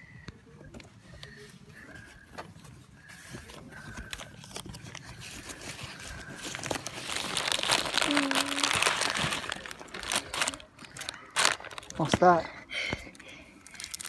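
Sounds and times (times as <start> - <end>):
hands rummaging through packing peanuts: 3.9 - 12.4, 13.6 - 14.0.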